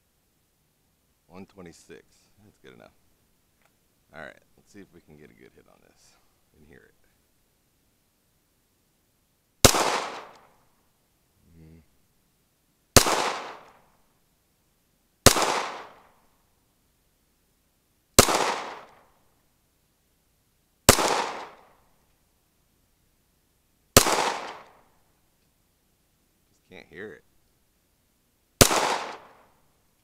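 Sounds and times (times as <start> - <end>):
pistol shots: 9.6 - 10.5, 13.0 - 13.8, 15.2 - 16.1, 18.2 - 19.0, 20.9 - 21.7, 24.0 - 24.8, 28.6 - 29.5.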